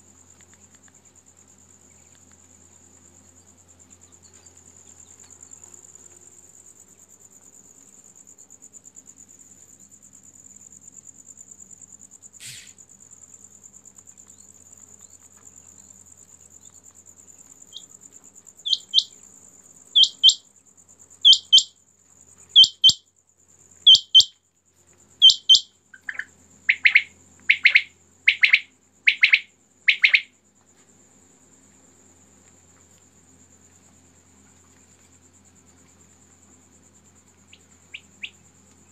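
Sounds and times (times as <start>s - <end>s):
quail calling: 20.0s - 20.4s, 25.2s - 30.3s.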